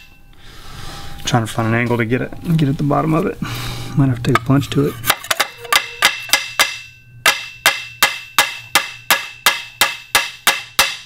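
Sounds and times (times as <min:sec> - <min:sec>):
hammer tapping metal: 0:04.4 - 0:11.0.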